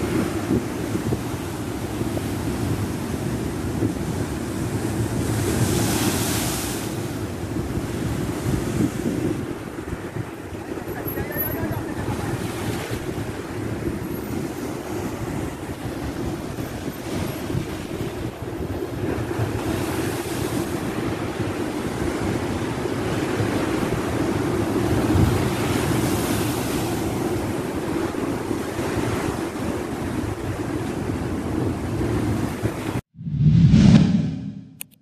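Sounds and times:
storm surf breaking on rocks: 0:00.0 - 0:13.9
wind buffeting microphone: 0:00.0 - 0:34.7.

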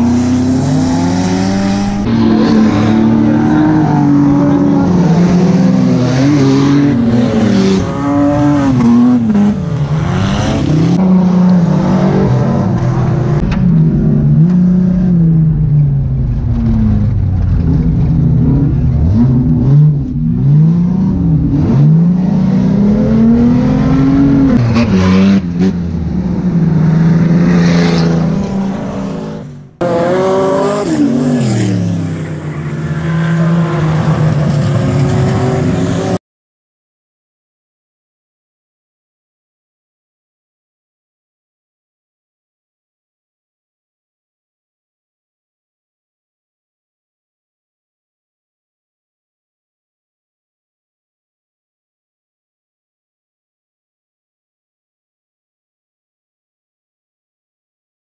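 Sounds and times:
car engines revving: 0:00.0 - 0:36.2.

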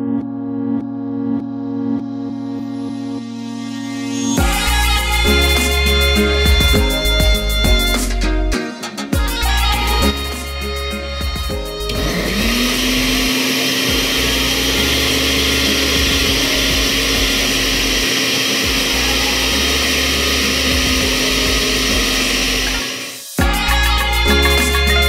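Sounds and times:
blender running: 0:11.9 - 0:25.0.

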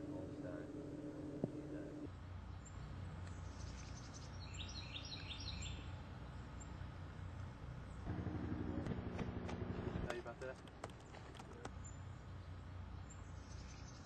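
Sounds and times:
loud low hum: 0:00.0 - 0:03.6, 0:05.7 - 0:10.4
steady low rumble: 0:00.0 - 0:03.6.

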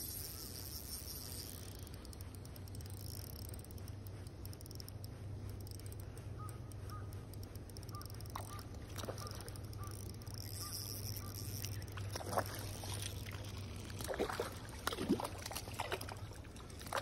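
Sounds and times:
fish splashing in water: 0:10.6 - 0:17.0.

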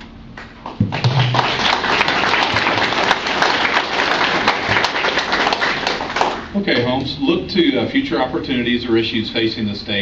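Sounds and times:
audience applauding: 0:00.6 - 0:06.5.

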